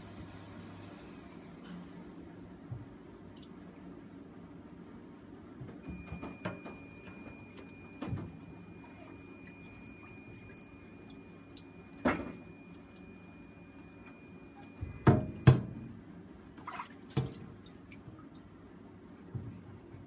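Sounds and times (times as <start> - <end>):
water dripping: 3.2 - 3.6, 8.8 - 11.8, 16.6 - 19.6
water splashing: 16.6 - 18.4.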